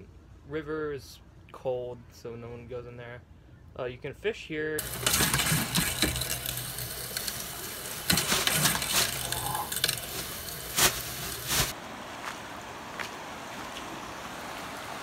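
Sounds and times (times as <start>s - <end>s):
steady hiss: 4.8s - 11.8s.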